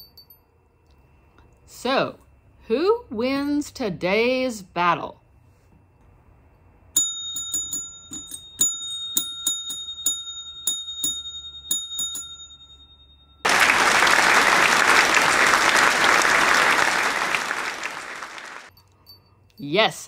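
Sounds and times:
bell ringing: 0:00.0 - 0:00.4, 0:07.0 - 0:13.6
crowd applauding: 0:13.4 - 0:18.7.

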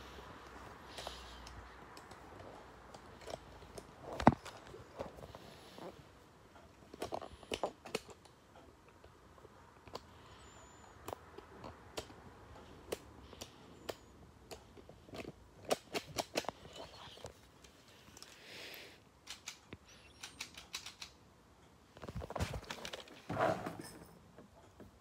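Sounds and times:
plastic toy gun clicking: 0:15.2 - 0:16.6, 0:19.2 - 0:19.6, 0:20.2 - 0:21.2.

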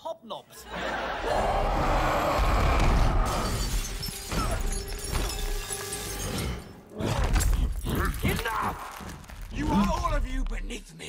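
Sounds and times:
body crashing through glass: 0:02.8 - 0:10.0
glass window shattering: 0:03.3 - 0:06.7
broken glass scattering on floor: 0:03.4 - 0:06.7.

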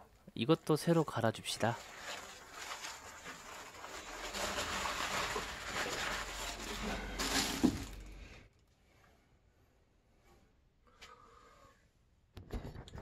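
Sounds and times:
pad rustling and crinkling: 0:01.7 - 0:08.2.

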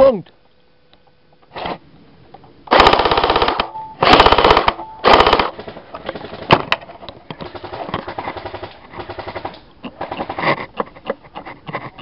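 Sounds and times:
airsoft rifle bursts: 0:02.7 - 0:06.7.

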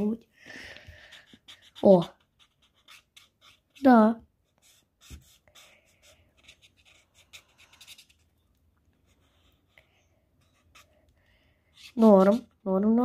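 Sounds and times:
marker rubbing on paper: 0:00.9 - 0:08.2, 0:09.0 - 0:11.0, 0:11.7 - 0:12.6.

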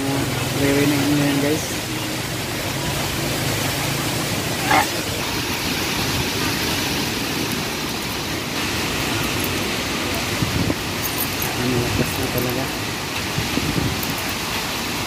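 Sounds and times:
heavy rain: 0:00.0 - 0:15.0
strong wind: 0:04.4 - 0:15.0.

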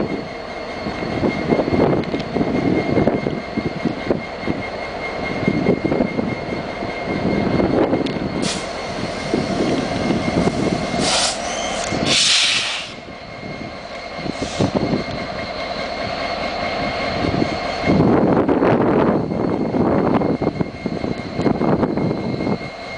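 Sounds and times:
locomotive engine idling: 0:06.4 - 0:18.2
air hissing: 0:08.4 - 0:13.1, 0:14.3 - 0:14.9.

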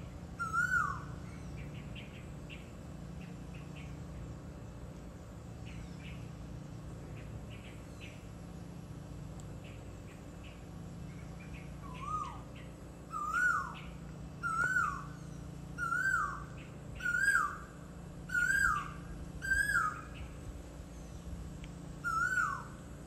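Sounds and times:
low steady hum: 0:00.0 - 0:23.0
animal calling: 0:11.8 - 0:15.2, 0:15.8 - 0:17.6, 0:22.0 - 0:22.8.

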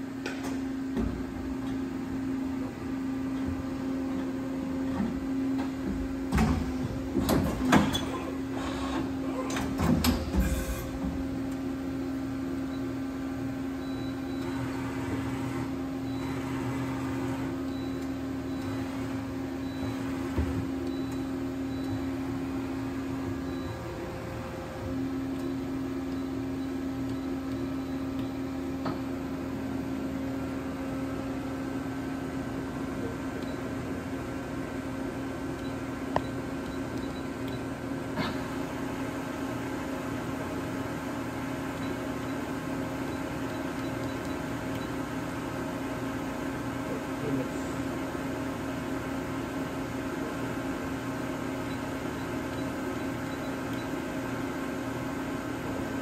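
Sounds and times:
machine steady hum: 0:00.0 - 0:56.0
mechanical clunks and clatter: 0:04.8 - 0:11.6.

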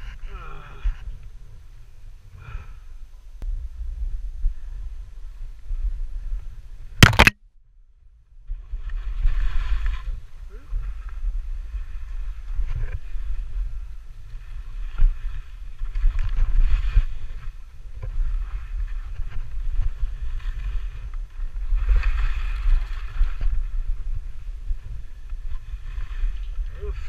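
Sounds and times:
low rumble: 0:00.0 - 0:08.8
wind buffeting microphone: 0:08.4 - 0:27.0.

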